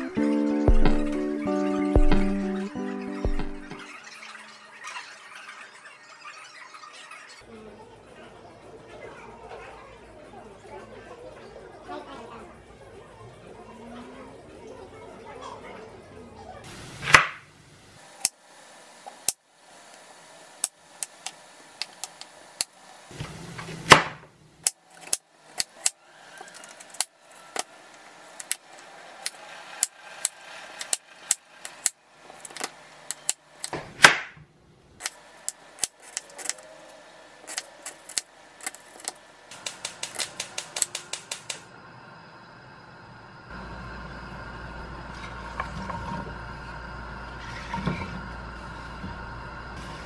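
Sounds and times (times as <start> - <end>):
knife chopping on wooden board: 0.7 - 1.1, 2.0 - 2.4, 17.1 - 17.4, 23.9 - 24.2.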